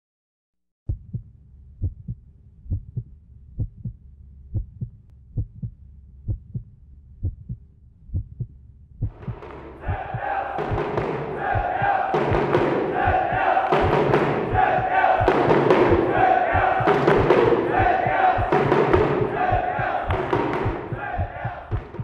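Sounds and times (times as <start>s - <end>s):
heartbeat thumps: 0.9s - 22.0s
crowd noise: 9.3s - 21.7s.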